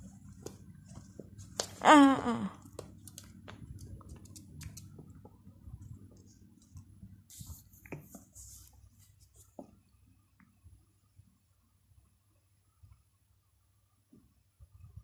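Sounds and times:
puppy gnawing chew stick: 3.1s - 5.0s.

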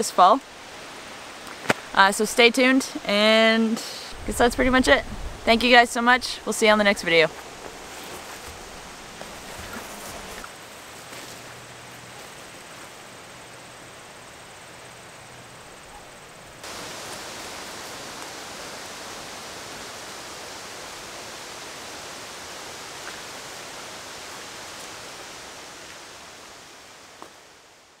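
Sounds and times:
outdoor rushing noise: 4.0s - 10.5s.

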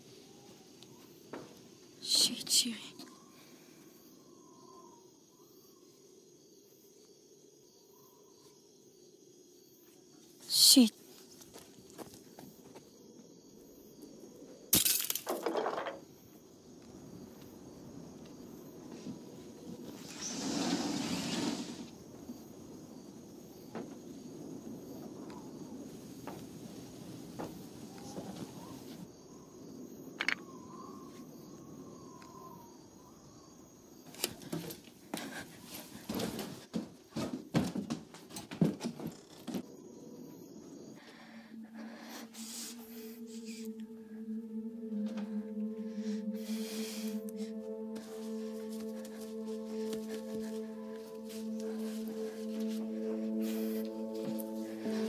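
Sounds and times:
wooden furniture knocking and scraping: 36.1s - 39.7s.

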